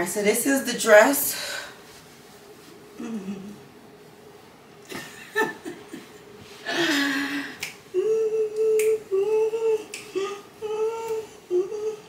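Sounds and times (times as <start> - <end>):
woman vocalizing without words: 3.0 - 3.6.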